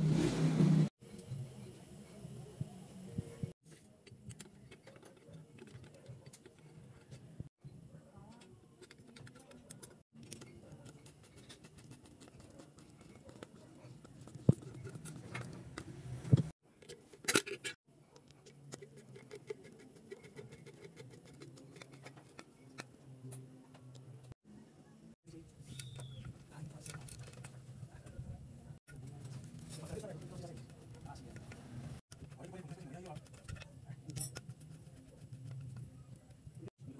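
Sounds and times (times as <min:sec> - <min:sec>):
screwdriver clicks and scrapes: 0:03.7 - 0:07.3, 0:08.3 - 0:23.0, 0:25.7 - 0:27.6, 0:28.9 - 0:36.3.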